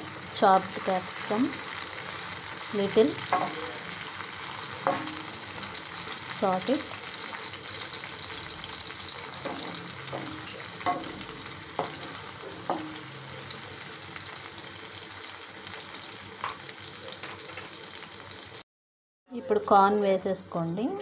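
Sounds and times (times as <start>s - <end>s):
vegetables sizzling in hot oil: 0.0s - 18.6s
spatula scraping and knocking pan: 3.1s - 5.8s, 9.2s - 13.2s.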